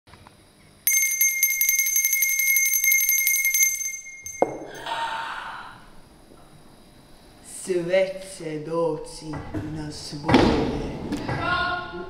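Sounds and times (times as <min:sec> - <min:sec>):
bell ringing rapidly: 0:00.9 - 0:04.8.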